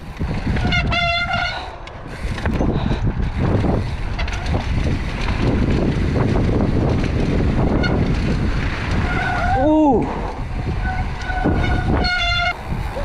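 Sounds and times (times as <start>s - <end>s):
bike knocks and rattles: 0.0s - 1.6s, 2.2s - 13.0s
bike tyres rumbling on dirt: 0.0s - 13.0s
wind buffeting microphone: 0.0s - 13.0s.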